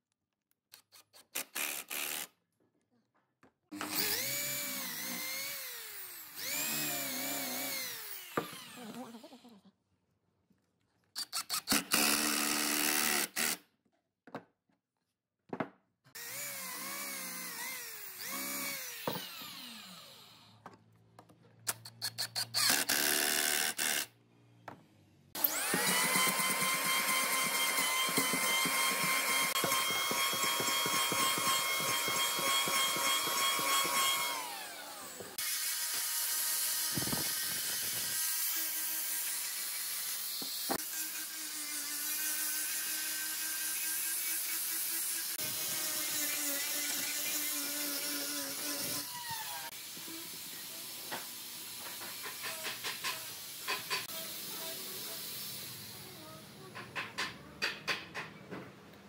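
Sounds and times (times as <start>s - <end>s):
electric hand planer running: 3.8s - 9.2s, 25.4s - 36.2s
angle grinder grinding wood: 3.8s - 9.5s, 16.2s - 20.4s, 25.4s - 55.4s.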